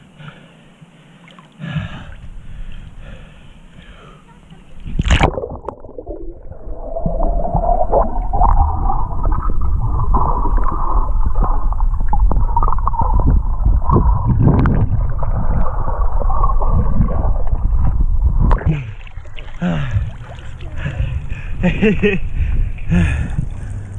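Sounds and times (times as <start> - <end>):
underwater rushing and gurgling: 4.8 - 23.9.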